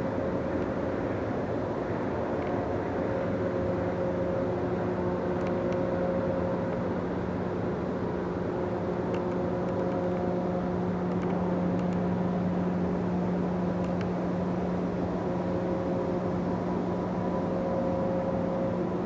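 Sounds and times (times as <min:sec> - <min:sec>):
machinery humming: 0:00.0 - 0:19.0
faint clicks: 0:13.8 - 0:14.1.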